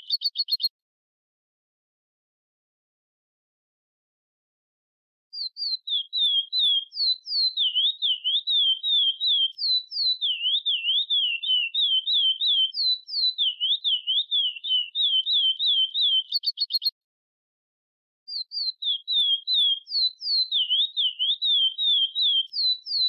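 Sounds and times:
songbird singing whistled notes: 0:00.0 - 0:00.7, 0:05.4 - 0:17.0, 0:18.3 - 0:23.0.

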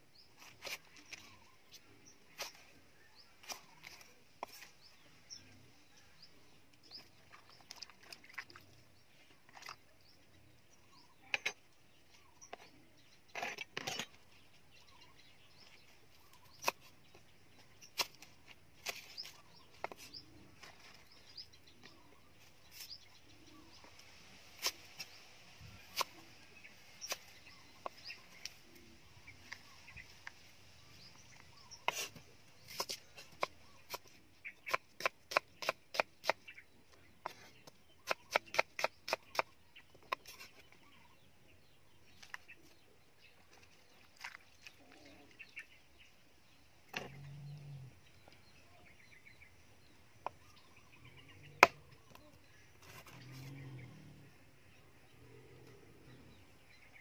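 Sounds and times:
cleaver chopping on wooden block: 0:34.7 - 0:36.4, 0:38.0 - 0:40.3, 0:51.6 - 0:51.8.

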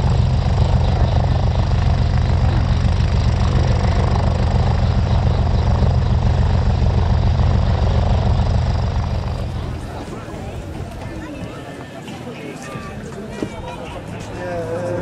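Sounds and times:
helicopter engine and rotor drone: 0:00.0 - 0:10.9.

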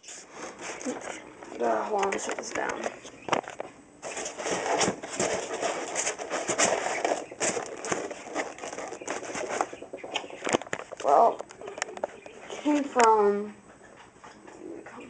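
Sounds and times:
styrofoam scraping and squeaking: 0:00.0 - 0:02.2, 0:03.3 - 0:12.8
crackling creaks and clicks: 0:00.8 - 0:03.8, 0:06.8 - 0:13.2.

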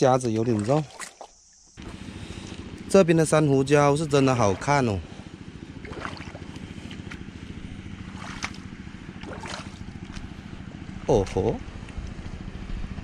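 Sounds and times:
steady low rumble: 0:01.8 - 0:13.0.

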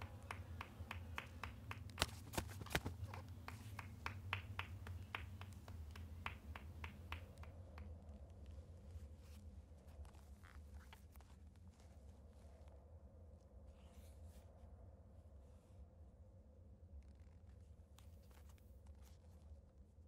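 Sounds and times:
hand clapping: 0:00.0 - 0:08.1
steady low hum: 0:00.0 - 0:20.0.

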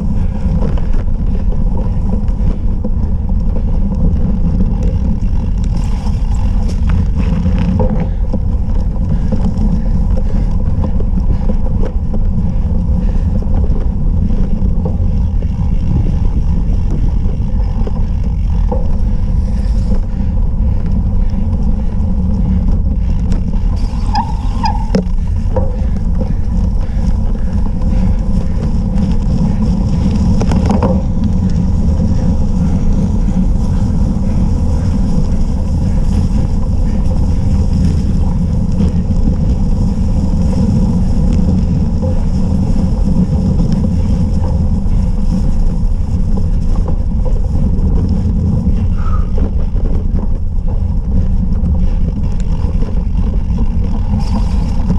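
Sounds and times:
bike knocking and rattling: 0:00.0 - 0:54.9
wind buffeting microphone: 0:00.0 - 0:54.9.

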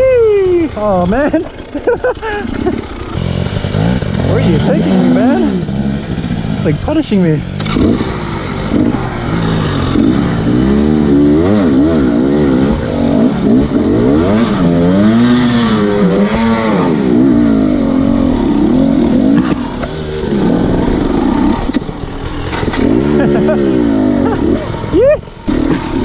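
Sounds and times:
dirt bike engine revving: 0:00.0 - 0:26.0.

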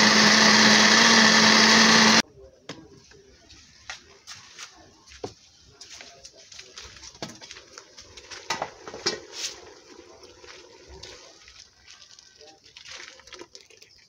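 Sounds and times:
liquid pouring into pot: 0:08.2 - 0:14.0.

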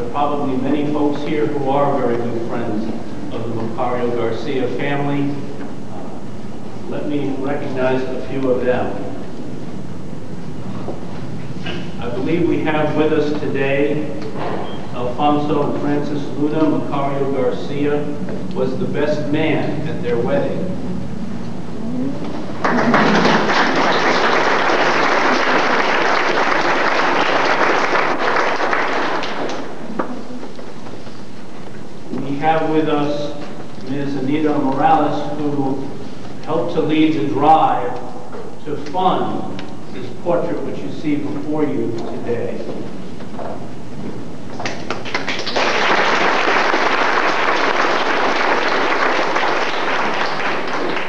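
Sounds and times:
audience applauding: 0:22.5 - 0:30.0, 0:44.6 - 0:51.0.

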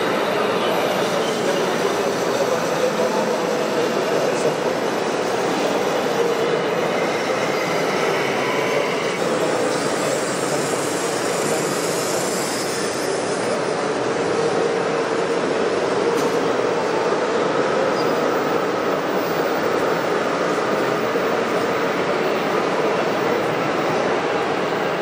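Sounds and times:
faint high motor whine: 0:00.0 - 0:25.0.

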